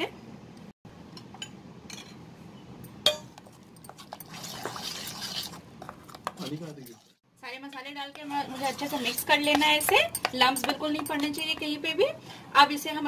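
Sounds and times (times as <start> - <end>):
wet stirring and scraping: 3.3 - 7.2, 7.8 - 12.4
spoon stirring thick marinade: 3.4 - 7.1, 7.7 - 12.3
spoon clinking on steel bowl: 9.0 - 11.6.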